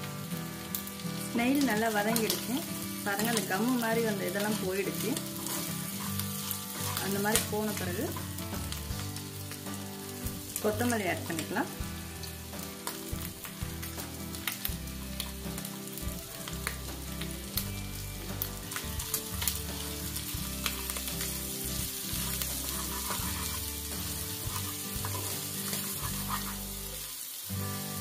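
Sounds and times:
food sizzling in a pan: 0.0s - 28.0s
wooden spatula scraping and clicking: 5.2s - 7.5s, 22.2s - 26.9s.

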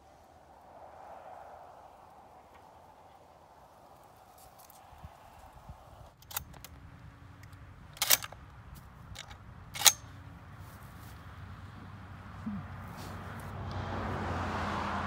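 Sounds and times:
shotgun action clicks: 6.2s - 6.8s, 7.4s - 8.4s, 9.1s - 10.1s.

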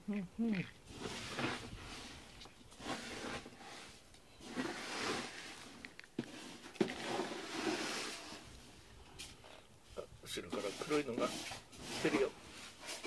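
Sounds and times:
cat rubbing on rubber brush: 0.9s - 8.5s, 10.4s - 13.0s.

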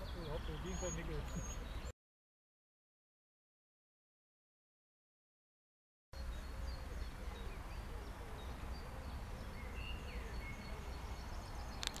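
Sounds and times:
faint bird chirps and whistles: 0.0s - 1.9s.

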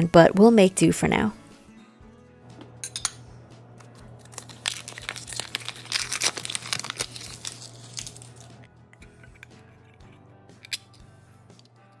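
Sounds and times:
paper wrapper tearing and crinkling: 4.2s - 8.6s.

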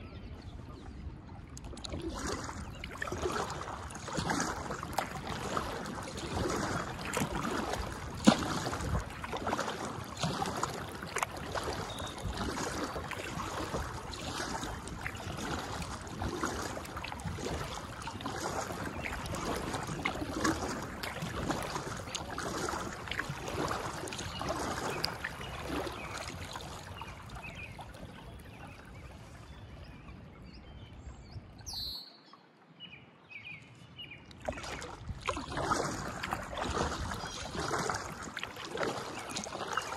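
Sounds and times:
paddle splashing in water: 0.3s - 30.5s, 34.2s - 39.9s
bird chirps: 31.6s - 32.3s.

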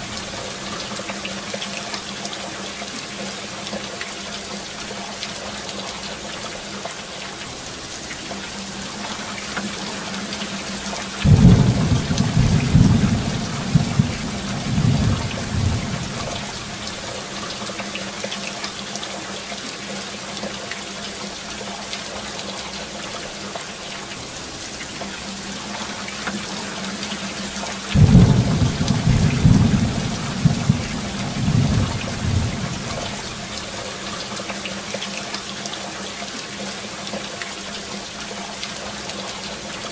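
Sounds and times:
rain falling: 0.0s - 39.9s
thunder rumbling: 11.2s - 17.0s, 28.0s - 33.7s.

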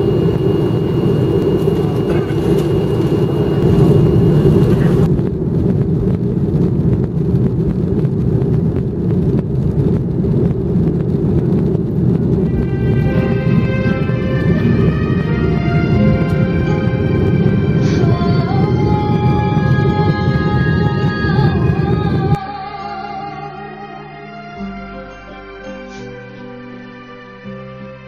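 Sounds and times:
thin high engine whine: 0.0s - 5.4s, 11.0s - 22.5s
jet engines rumbling: 0.0s - 22.4s.

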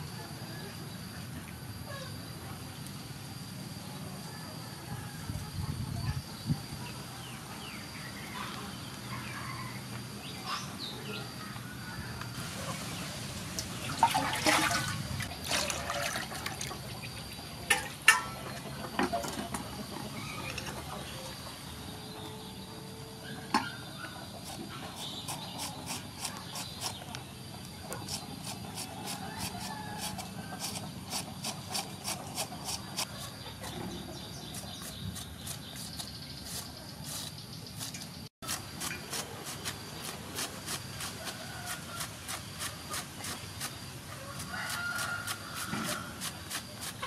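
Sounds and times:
water splashing and trickling: 12.4s - 18.3s
water poured into metal bowl: 13.6s - 16.8s
peeler scraping cabbage: 24.3s - 33.8s, 34.4s - 47.0s.

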